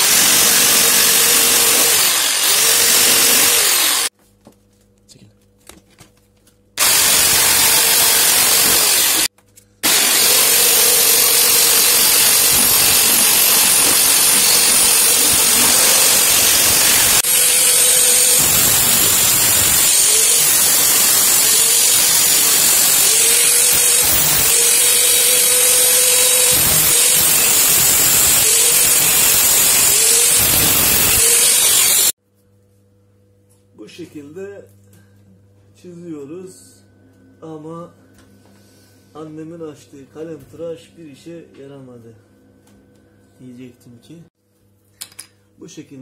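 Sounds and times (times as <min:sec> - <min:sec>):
angle grinder cutting metal: 0:00.0 - 0:04.1, 0:06.8 - 0:32.2.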